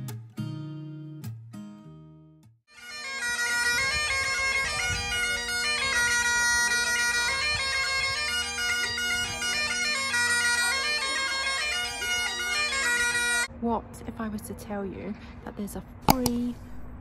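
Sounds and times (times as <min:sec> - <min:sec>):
bagpipes playing: 0:02.7 - 0:13.5.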